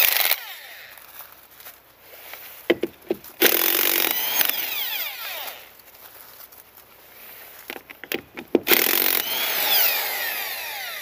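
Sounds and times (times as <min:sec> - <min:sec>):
impact wrench running: 0:02.7 - 0:05.1, 0:07.7 - 0:11.0
motor winding down whine: 0:08.7 - 0:11.0.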